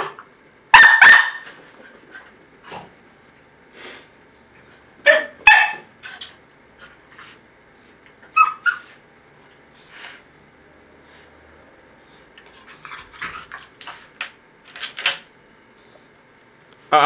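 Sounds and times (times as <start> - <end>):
dog barking: 0.7 - 1.6, 5.0 - 5.9.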